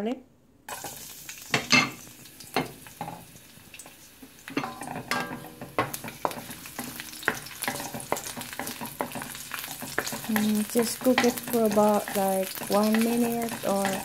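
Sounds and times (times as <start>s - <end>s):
garlic sizzling in oil: 0.7s - 14.0s
spatula scraping a metal pan: 4.6s - 14.0s.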